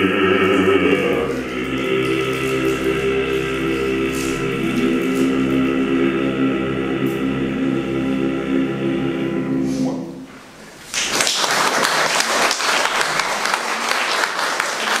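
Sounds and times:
male choir singing a cappella: 0.0 - 10.3
audience applause: 10.9 - 15.0.

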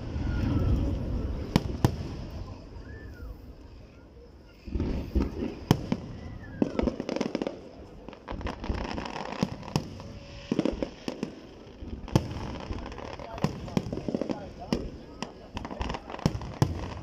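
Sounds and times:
low rumble: 0.0 - 4.0
fireworks bangs and crackling: 0.0 - 17.0.

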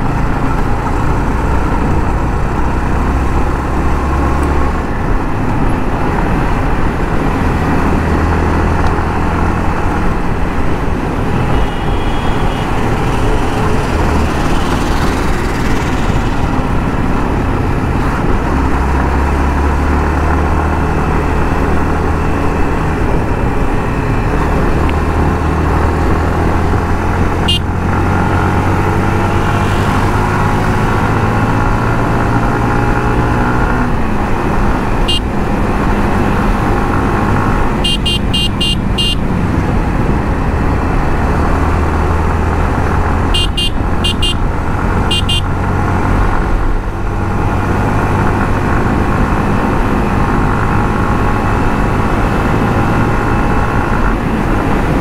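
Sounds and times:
motorcycle engine running: 9.4 - 18.4, 33.9 - 40.7, 42.8 - 47.2
high horn beeps: 11.3 - 13.8, 27.3 - 28.5, 29.2 - 30.2, 35.0 - 35.3, 37.8 - 39.2, 43.3 - 45.5.

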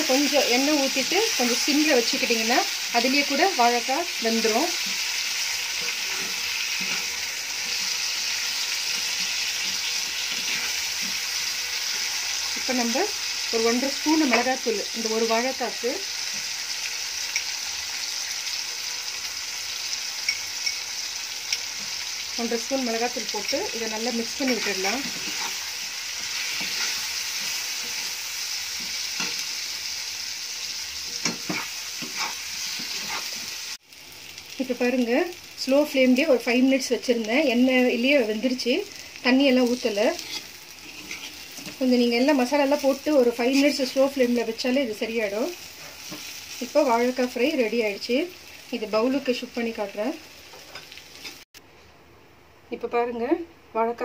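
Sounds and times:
food frying in oil: 0.0 - 51.6
metal spoon scraping pan: 4.8 - 12.7, 23.2 - 28.1, 31.1 - 33.6, 40.1 - 41.8
spoon stirring: 24.3 - 28.0, 31.2 - 33.5, 40.2 - 41.8.

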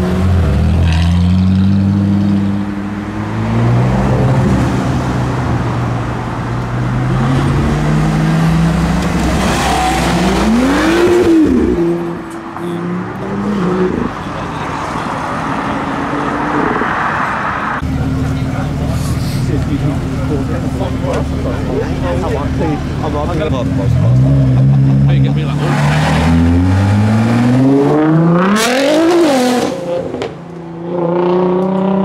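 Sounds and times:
cars accelerating away: 0.0 - 12.2, 12.8 - 32.0
engine revving: 6.9 - 14.2, 19.4 - 32.0.

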